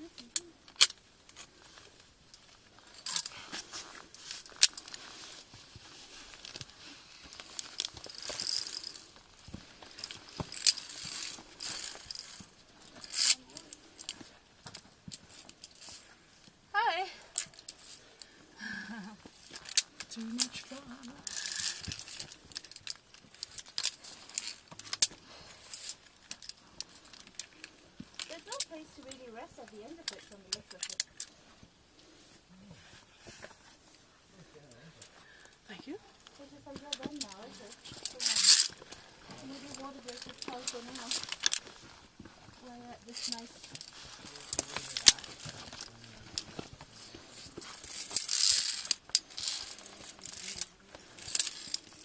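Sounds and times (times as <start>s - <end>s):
carabiners clicking on steel cable: 0.2s - 1.5s, 2.3s - 3.4s, 4.1s - 5.0s, 7.3s - 9.2s, 9.9s - 16.0s, 19.4s - 31.3s, 36.4s - 41.8s, 43.0s - 52.0s
rustling and scuffing on rock: 1.3s - 16.5s, 36.2s - 52.0s.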